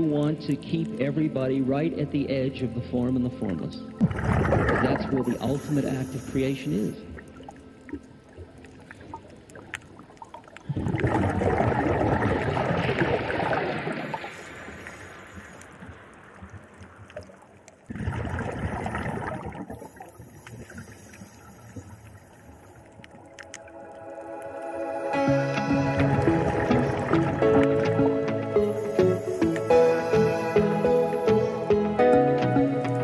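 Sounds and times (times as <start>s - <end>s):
diver exhaling bubbles underwater: 4.0s - 5.8s, 10.4s - 15.6s, 17.9s - 22.5s
faint water hiss: 4.8s - 10.8s, 13.3s - 18.0s, 18.8s - 27.9s, 28.5s - 32.2s.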